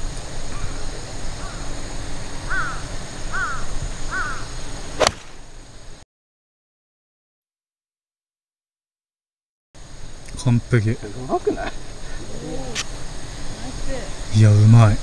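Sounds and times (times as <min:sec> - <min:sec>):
crow cawing: 0:02.5 - 0:04.5
golf club striking ball: 0:05.0 - 0:05.5.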